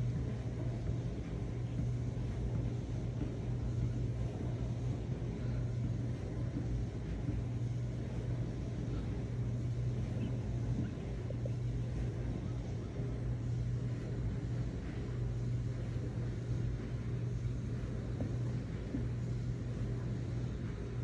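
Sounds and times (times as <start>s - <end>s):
low mechanical hum with rumble: 0.0s - 21.0s.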